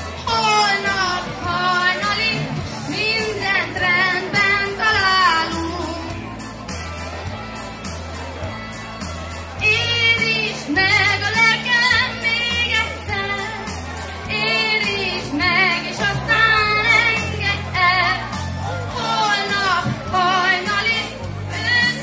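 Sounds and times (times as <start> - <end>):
woman singing pop song: 0.0 - 6.4, 9.6 - 22.0
amplified accompaniment with bass: 0.0 - 22.0.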